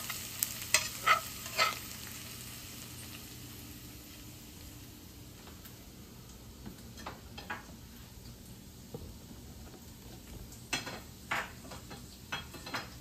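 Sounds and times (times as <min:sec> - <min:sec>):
utensil scraping a frying pan: 0:00.0 - 0:02.0
faint grease sizzle: 0:00.0 - 0:13.0.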